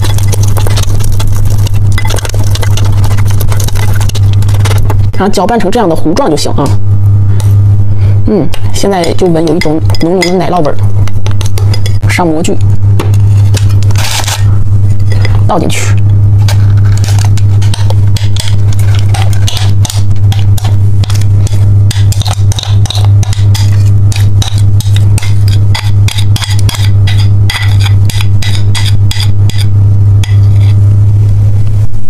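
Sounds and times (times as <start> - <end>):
spatula scraping bowl: 0.0 - 5.0, 13.2 - 15.5, 16.4 - 30.8
loud low hum: 0.0 - 32.0.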